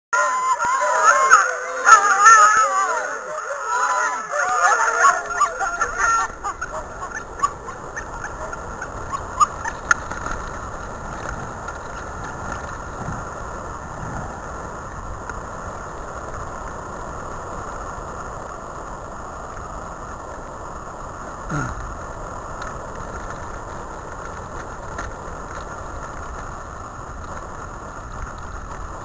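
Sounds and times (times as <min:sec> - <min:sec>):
dogs yelping and howling: 0:00.2 - 0:10.0
rumbling of sled run: 0:00.2 - 0:29.0.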